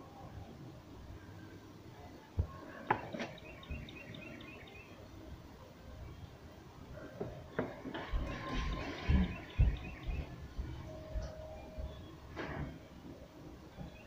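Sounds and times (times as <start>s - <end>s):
faint bird chirps: 3.1s - 5.1s, 8.0s - 12.9s, 13.7s - 14.0s.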